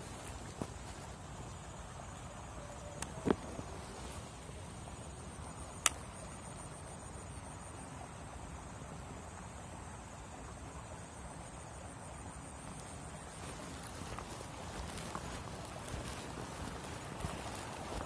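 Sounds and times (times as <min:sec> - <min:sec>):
high insect trill: 0:00.0 - 0:18.0
low background hiss: 0:00.0 - 0:18.0.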